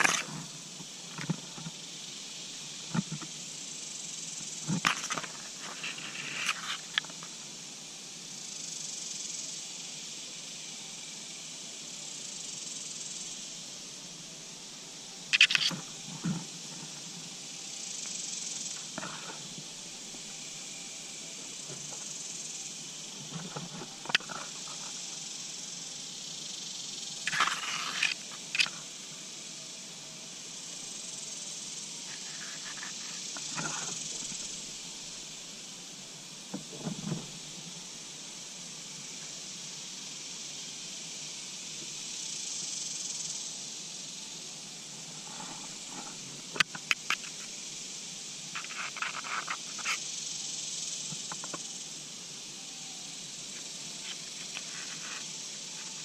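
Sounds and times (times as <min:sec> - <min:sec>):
high-pitched insect chorus: 0:00.0 - 0:56.0
rustles: 0:00.0 - 0:56.0.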